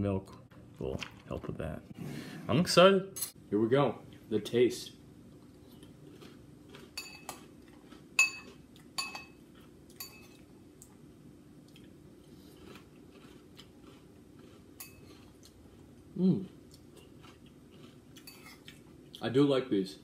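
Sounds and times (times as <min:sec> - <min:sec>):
quiet chewing of cereal: 0:05.3 - 0:19.3
metal spoon clinking on ceramic bowl: 0:07.0 - 0:07.4, 0:08.2 - 0:10.4.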